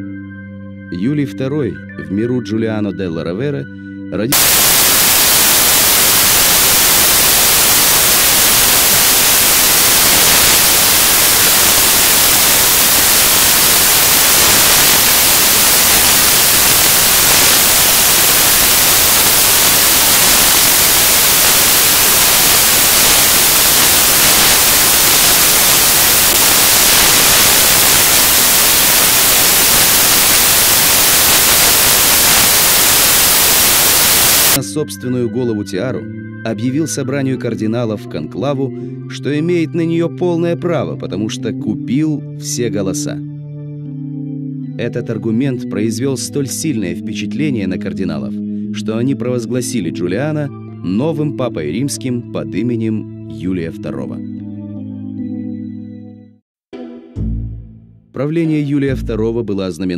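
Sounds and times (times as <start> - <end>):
loud static hiss: 4.3 - 34.6.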